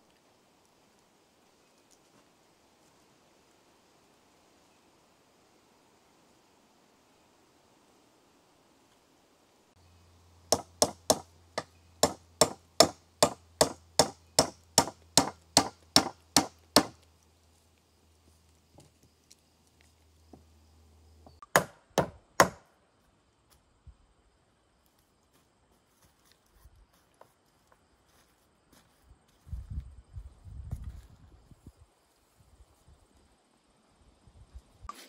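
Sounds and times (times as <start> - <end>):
hand tool striking wooden rungs: 10.5 - 17.0, 21.4 - 22.6.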